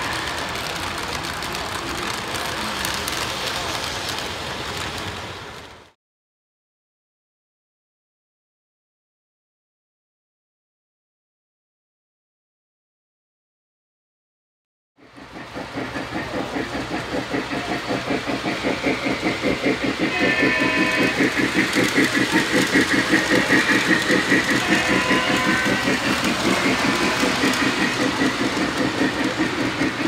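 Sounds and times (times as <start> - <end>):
model steam locomotive chuffing: 0.0 - 6.0, 15.0 - 30.0
train running on track: 0.0 - 6.0, 15.0 - 30.0.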